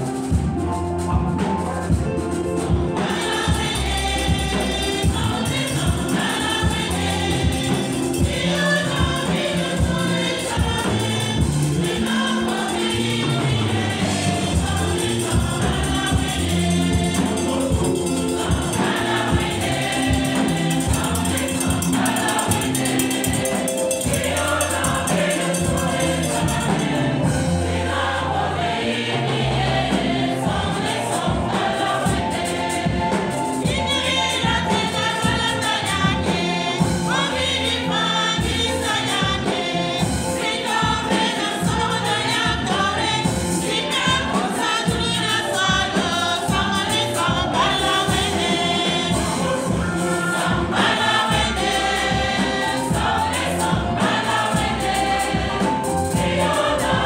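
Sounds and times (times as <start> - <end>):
choir and congregation singing hymn: 0.0 - 57.0
sustained instrumental notes: 2.7 - 57.0
sharp percussive strikes: 14.4 - 27.2.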